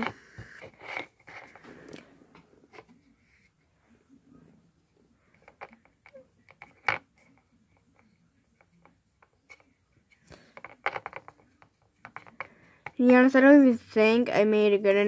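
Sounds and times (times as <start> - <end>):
hands clicking and tapping objects: 5.3 - 13.4.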